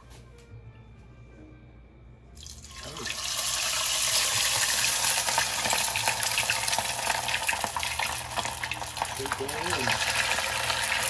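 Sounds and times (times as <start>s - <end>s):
oil sizzling and crackling: 2.4s - 11.0s.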